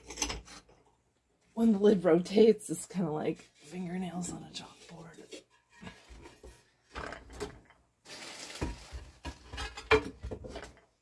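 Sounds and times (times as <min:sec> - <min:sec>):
ceramics clinking and scraping: 0:00.0 - 0:00.8.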